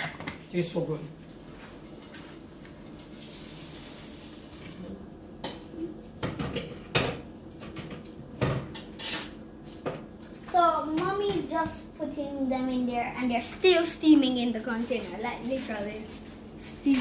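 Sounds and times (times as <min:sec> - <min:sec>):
water running: 0:00.5 - 0:06.0
kitchen utensils and pots clattering: 0:05.4 - 0:09.4.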